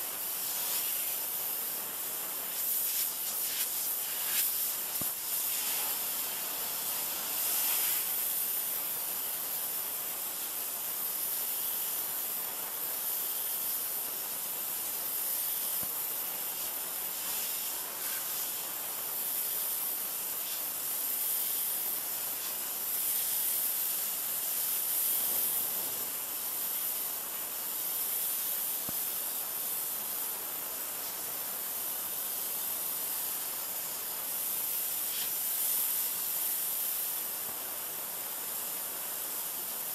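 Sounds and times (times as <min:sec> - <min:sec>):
pressure washer jet hissing: 0:00.2 - 0:12.4, 0:14.7 - 0:25.6.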